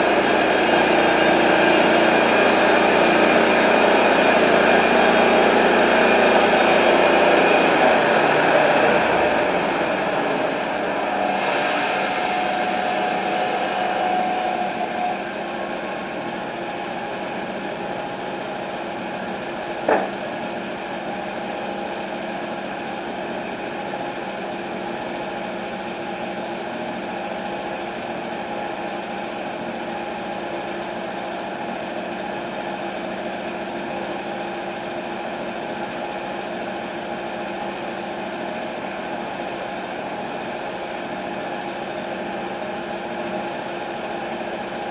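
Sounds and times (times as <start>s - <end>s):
sawmill engine running: 0.0s - 20.5s
machine whine: 0.0s - 33.4s
wooden slab clattering onto pile: 19.9s - 20.2s.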